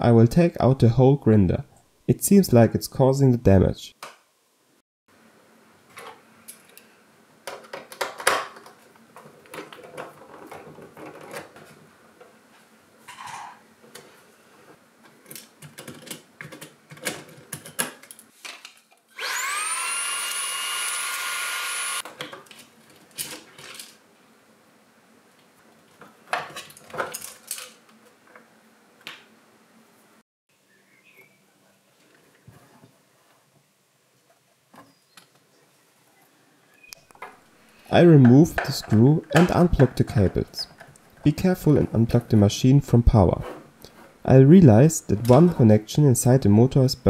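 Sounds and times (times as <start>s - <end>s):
small electric motor whine: 19.1s - 22.0s.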